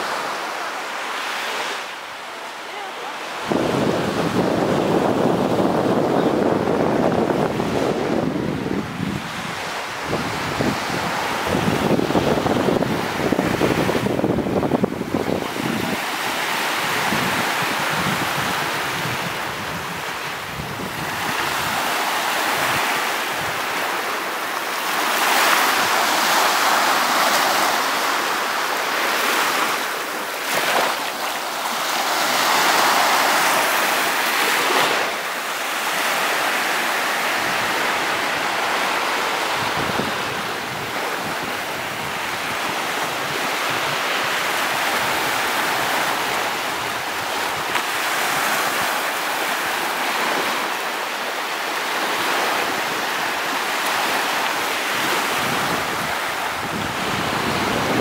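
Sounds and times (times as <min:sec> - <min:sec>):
small waves washing on sand: 0:00.0 - 0:58.0
wind buffeting microphone: 0:03.4 - 0:24.0, 0:37.2 - 0:49.1, 0:54.9 - 0:58.0.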